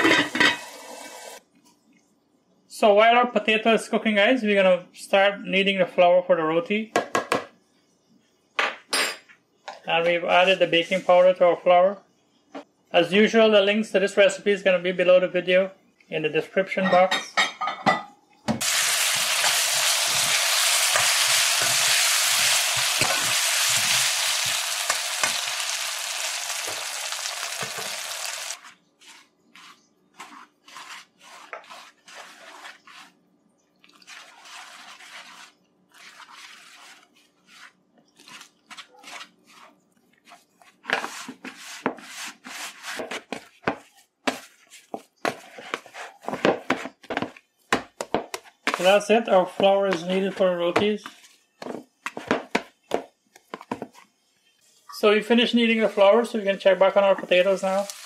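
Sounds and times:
loud steady hiss: 18.6s - 28.6s
flour and water mixed by hand: 18.6s - 47.4s, 48.6s - 51.4s, 54.9s - 58.0s
dough being kneaded: 26.3s - 33.2s, 33.9s - 54.1s.

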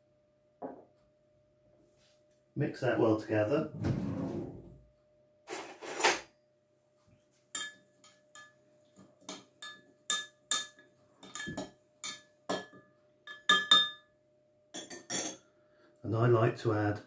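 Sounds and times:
spoon clinking against glass jug: 7.6s - 8.6s, 9.3s - 14.1s, 14.8s - 15.4s.

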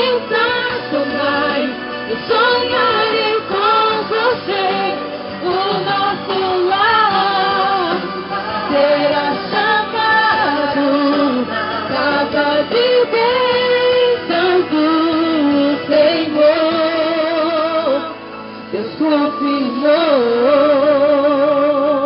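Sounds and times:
woman singing slow song: 0.0s - 22.0s.

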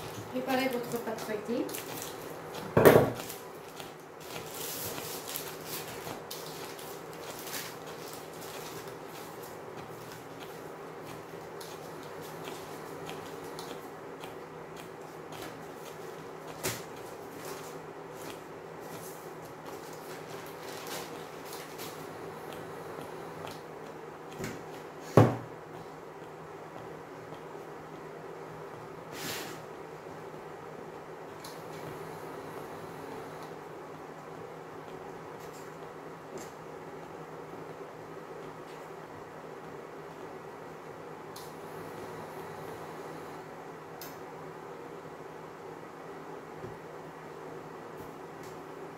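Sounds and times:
pastry sheet rustling: 0.0s - 13.5s
induction hob humming: 0.0s - 48.9s
low electrical buzz: 0.0s - 48.9s.

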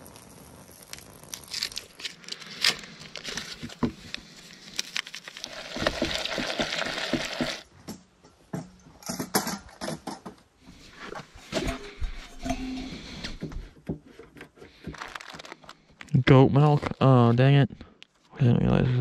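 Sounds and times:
packet crinkling: 0.2s - 7.6s, 14.9s - 15.8s.

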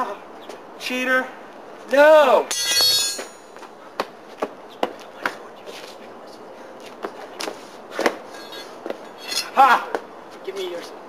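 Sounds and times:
scuffling: 7.4s - 9.6s.

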